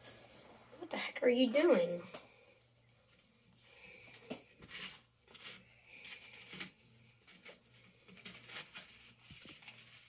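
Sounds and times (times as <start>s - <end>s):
crumbly food crackling: 3.7s - 10.0s.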